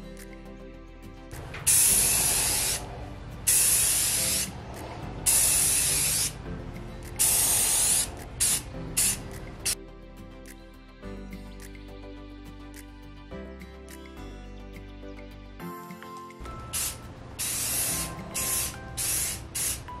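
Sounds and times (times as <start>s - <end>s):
spray paint can hissing: 1.4s - 6.5s, 7.1s - 9.8s, 16.5s - 20.0s.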